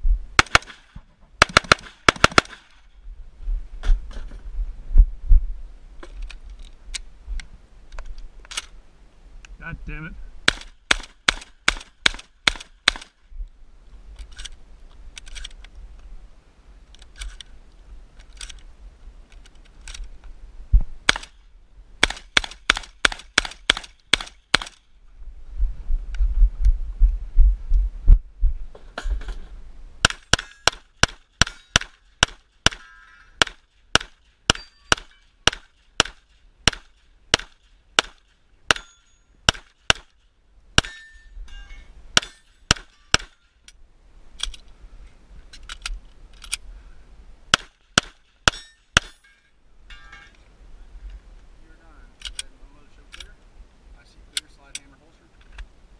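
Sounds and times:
low rumble: 0.0s - 0.4s, 2.9s - 7.7s, 24.9s - 30.0s
pistol shots: 0.4s - 2.7s, 10.5s - 13.1s, 21.1s - 21.3s, 22.0s - 24.8s, 30.0s - 32.8s, 33.4s - 40.1s, 42.2s - 43.4s, 47.5s - 49.2s
shotgun shots: 0.4s - 2.8s, 10.4s - 13.2s, 21.1s - 21.4s, 22.0s - 24.8s, 30.0s - 40.2s, 42.2s - 43.4s, 47.5s - 49.2s.

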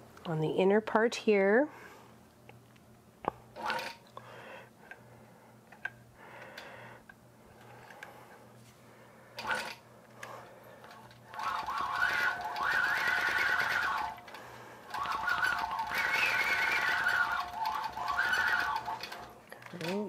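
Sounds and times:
quilting machine whining: 9.4s - 20.0s.

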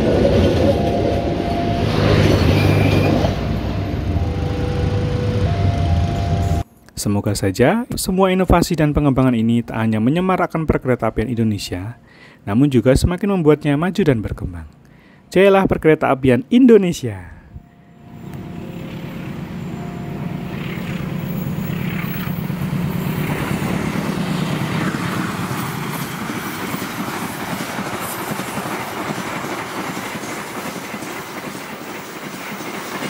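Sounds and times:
diesel locomotive engine drone: 0.0s - 6.7s, 17.4s - 33.0s
train wheels rattling on rails: 18.3s - 33.0s.

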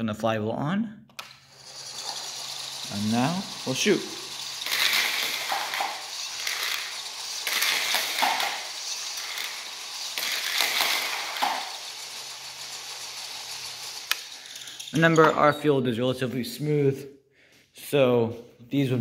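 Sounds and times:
flywheel whirring and scraping discs: 1.2s - 15.4s.

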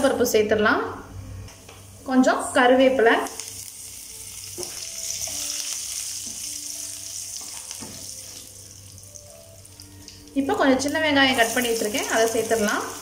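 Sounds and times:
leaves sizzling in hot oil: 3.0s - 13.0s.

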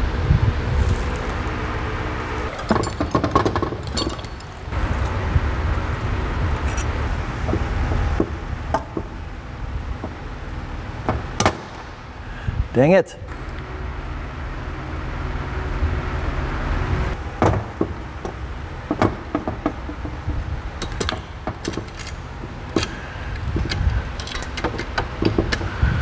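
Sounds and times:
low hum: 0.0s - 26.0s
metallic clicks and clinks: 2.5s - 4.8s, 20.8s - 25.7s.

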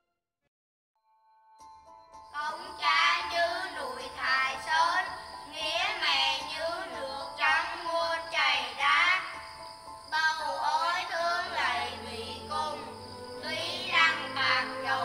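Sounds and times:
high singing voice: 2.4s - 9.3s, 10.2s - 15.0s
held instrumental tones: 11.1s - 15.0s.

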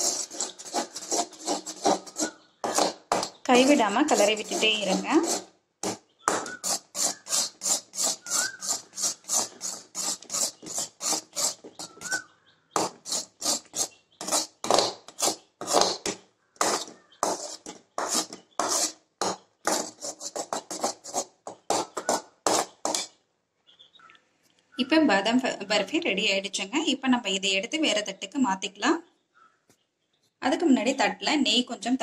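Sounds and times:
metal spatula scraping a pan: 0.0s - 5.5s, 6.3s - 12.2s, 12.8s - 23.1s.

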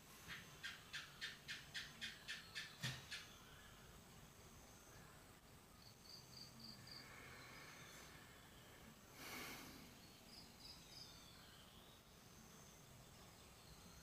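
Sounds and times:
faint background hiss: 0.0s - 14.0s.

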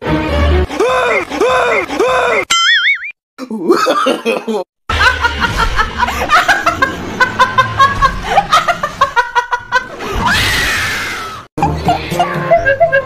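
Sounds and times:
cartoon character snickering laugh: 11.6s - 13.0s.

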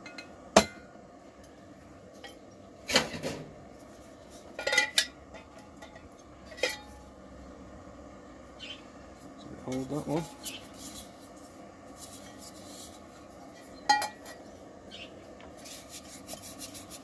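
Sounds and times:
metal cook pots clattering: 2.2s - 3.5s, 4.5s - 7.0s, 13.6s - 14.4s.

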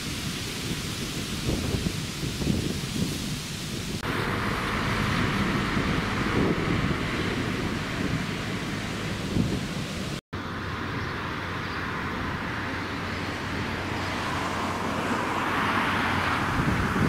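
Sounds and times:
outdoor background noise: 0.0s - 17.0s
wind buffeting microphone: 0.0s - 17.0s.

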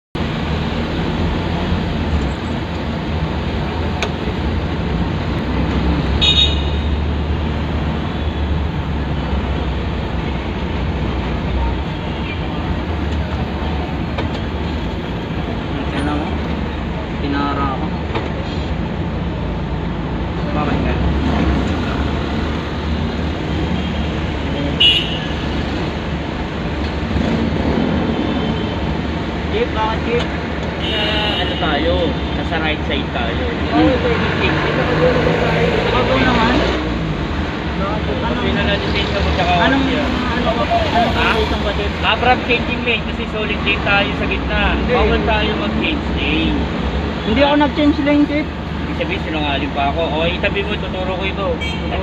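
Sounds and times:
traffic noise: 0.1s - 52.0s
car road and engine rumble: 0.2s - 52.0s.

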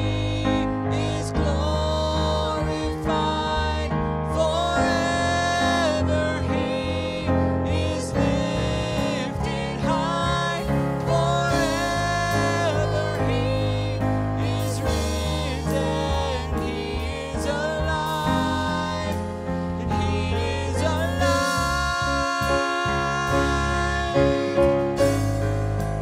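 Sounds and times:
woman and man singing: 0.0s - 24.8s
instrumental accompaniment: 0.0s - 26.0s.

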